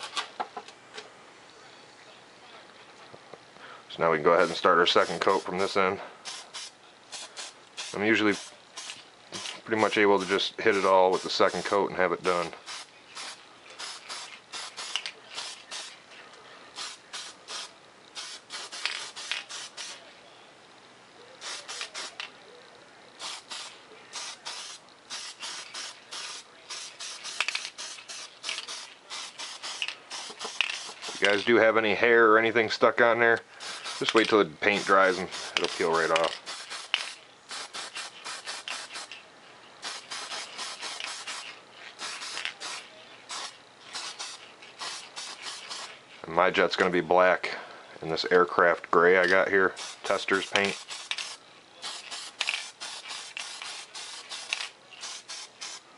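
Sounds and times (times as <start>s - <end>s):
spray paint can hissing: 4.4s - 16.0s, 16.8s - 20.0s, 21.4s - 22.3s, 23.2s - 31.5s, 33.6s - 39.2s, 39.8s - 46.0s, 49.8s - 55.8s.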